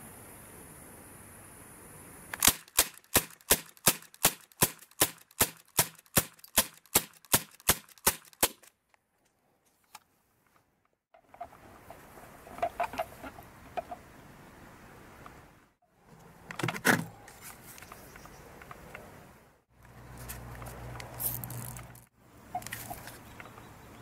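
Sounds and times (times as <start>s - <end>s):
pistol shots: 2.4s - 8.6s.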